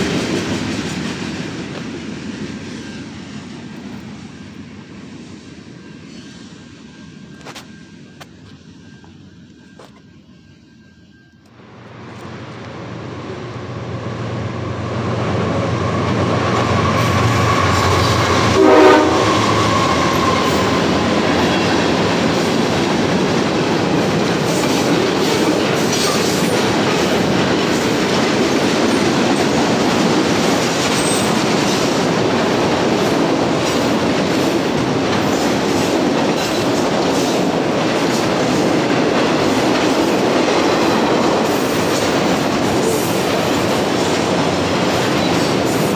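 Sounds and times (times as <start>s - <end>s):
train wheels clattering on rail: 0.0s - 10.2s, 14.8s - 45.9s
diesel locomotive drone: 0.0s - 45.9s
train horn blast: 16.1s - 22.0s.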